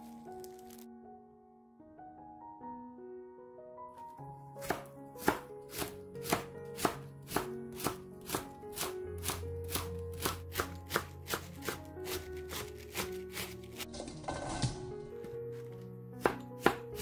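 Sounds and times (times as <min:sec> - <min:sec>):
background music sustained notes: 0:00.0 - 0:17.0
knife slicing cabbage leaves: 0:04.6 - 0:13.9, 0:15.6 - 0:17.0.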